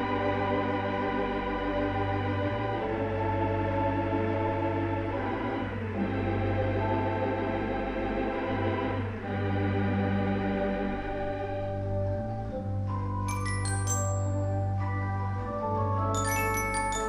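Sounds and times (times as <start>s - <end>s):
pipe organ sustained chords: 0.0s - 17.0s.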